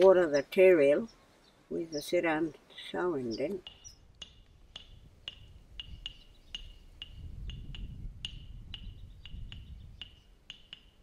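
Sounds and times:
animal sharp ringing ticks: 3.6s - 11.0s
wind rumble on microphone: 3.8s - 10.3s.

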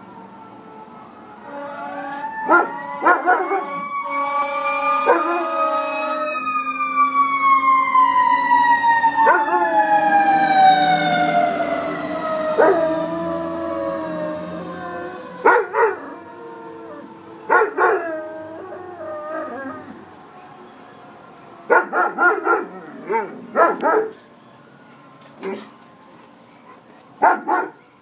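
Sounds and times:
fire truck siren wailing: 0.0s - 26.7s
dog howling: 4.9s - 6.3s, 9.2s - 9.9s, 12.4s - 20.0s
dog yelping: 15.4s - 16.1s, 17.5s - 18.1s.

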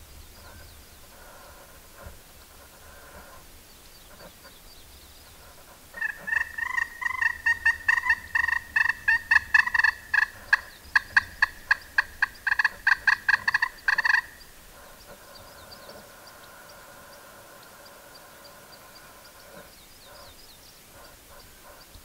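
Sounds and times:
turkey call yelps: 6.0s - 14.4s.

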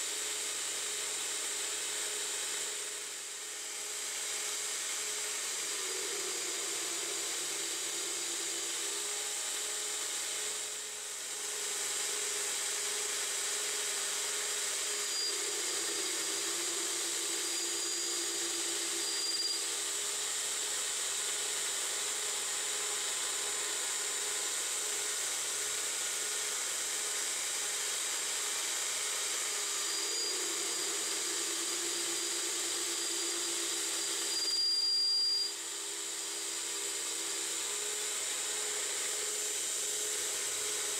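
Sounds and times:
high cutting whine: 27.2s - 40.9s.

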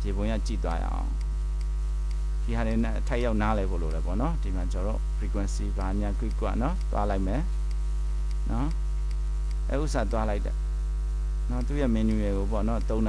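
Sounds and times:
man speaking: 0.0s - 1.2s, 2.4s - 7.5s, 8.4s - 8.8s, 9.7s - 10.6s, 11.5s - 13.0s
low mains hum: 0.0s - 13.0s.

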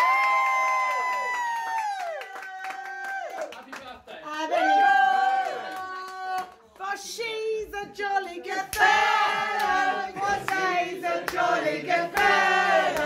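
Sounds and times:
voices singing together: 8.2s - 13.0s.

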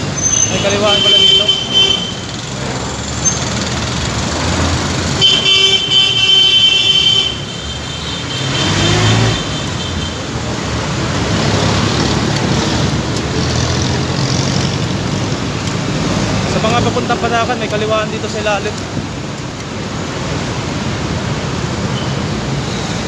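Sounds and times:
traffic engine and tyre noise: 0.0s - 23.0s
vehicle horn: 0.6s - 2.3s, 5.2s - 10.2s.

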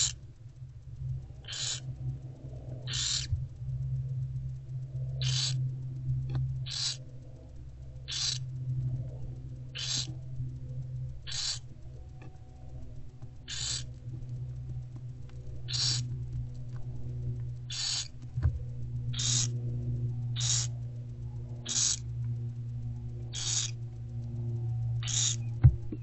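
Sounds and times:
owlets hissing calls: 0.0s - 0.2s, 1.4s - 1.9s, 2.9s - 3.3s, 5.2s - 5.6s, 6.6s - 7.0s, 8.1s - 8.6s, 9.6s - 10.2s, 11.2s - 11.7s, 13.4s - 13.9s, 15.6s - 16.1s, 17.7s - 18.2s, 19.1s - 19.5s, 20.3s - 20.8s, 21.6s - 22.0s, 23.3s - 23.8s, 25.0s - 25.5s
low electrical hum: 0.0s - 26.0s.

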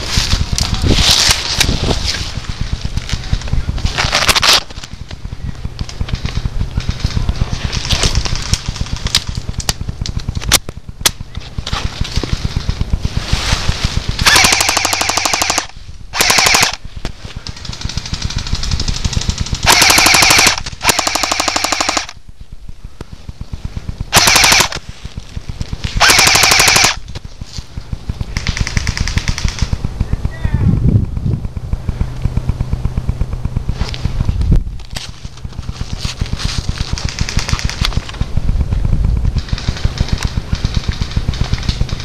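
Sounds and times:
airsoft guns rapid clicking: 0.3s - 22.2s, 22.9s - 30.4s, 34.4s - 42.0s
close airsoft gun bursts: 14.1s - 16.9s, 17.5s - 22.2s, 24.1s - 24.9s, 26.0s - 27.1s.

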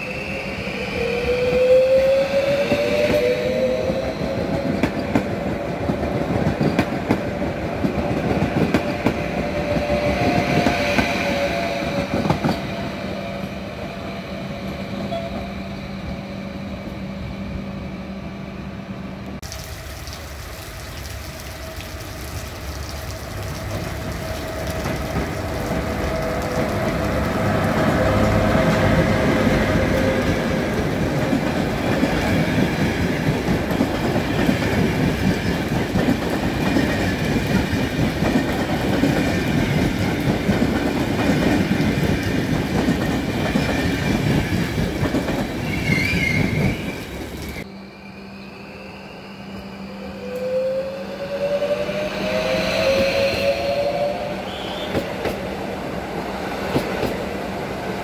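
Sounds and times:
passenger train rumbling past: 0.0s - 58.0s.

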